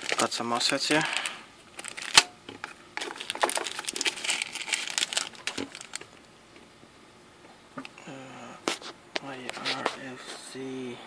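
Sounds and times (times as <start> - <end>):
plastic bag crinkling: 0.0 - 2.3, 3.0 - 6.2.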